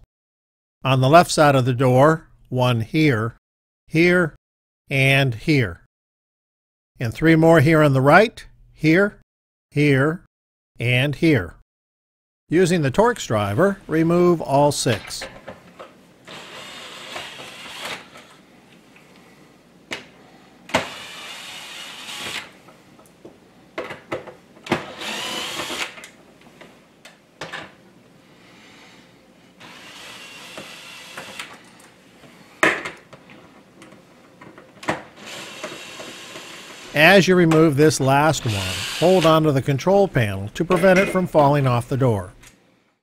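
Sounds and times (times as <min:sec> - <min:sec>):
cordless drill whirring: 0:16.2 - 0:18.4, 0:20.7 - 0:22.6, 0:24.8 - 0:26.2, 0:29.6 - 0:31.8, 0:35.2 - 0:37.0, 0:38.4 - 0:39.4.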